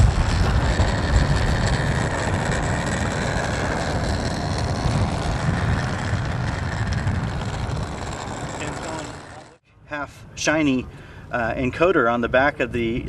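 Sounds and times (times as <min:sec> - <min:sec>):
model airplane engine whine: 0:00.0 - 0:09.6
wind rumble on microphone: 0:00.0 - 0:09.6.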